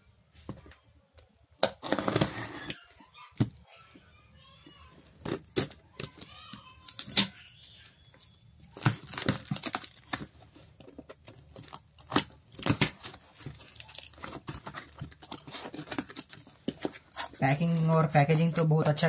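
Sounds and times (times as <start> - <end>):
tape tearing: 1.6 - 2.9, 6.8 - 17.4.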